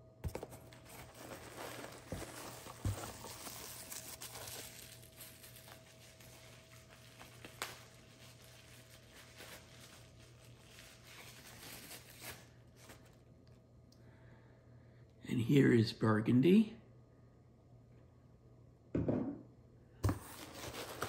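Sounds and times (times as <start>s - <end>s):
low steady hum: 0.0s - 21.0s
packaging rustling and crinkling: 0.2s - 13.3s, 20.0s - 21.0s.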